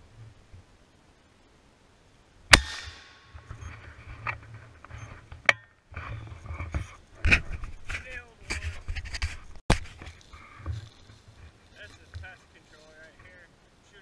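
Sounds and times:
shotgun blast echoing: 0:02.5 - 0:03.3
sharp crack: 0:02.5 - 0:03.4
rustling: 0:02.9 - 0:14.0.

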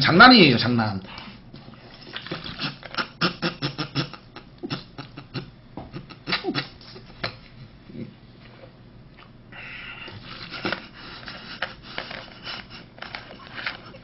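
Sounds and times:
man's stifled laughter: 0:02.5 - 0:07.1.

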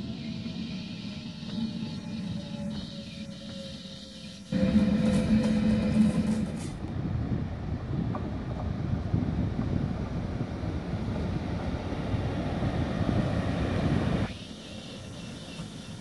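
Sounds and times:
electric locomotive rumbling: 0:00.0 - 0:16.0
wind on microphone: 0:04.6 - 0:14.3.

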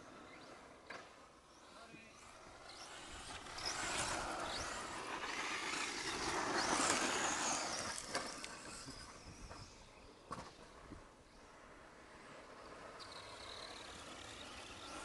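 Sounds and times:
rc truck motor whine: 0:00.0 - 0:15.0
tyres on loose dirt: 0:02.7 - 0:10.7.

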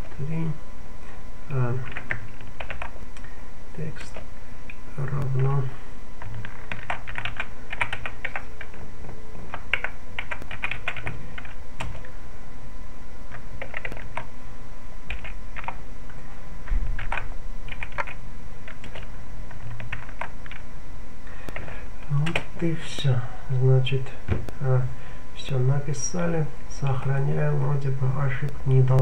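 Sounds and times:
computer keyboard typing: 0:01.8 - 0:03.0, 0:06.2 - 0:08.8, 0:09.4 - 0:12.1, 0:13.3 - 0:14.3, 0:15.1 - 0:15.8, 0:16.9 - 0:20.6, 0:21.5 - 0:22.6.

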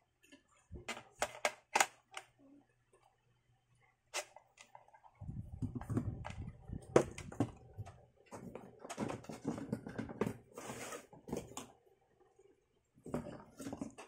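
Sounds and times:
plastic parts knocking in cardboard box: 0:05.6 - 0:07.6, 0:08.3 - 0:10.5.

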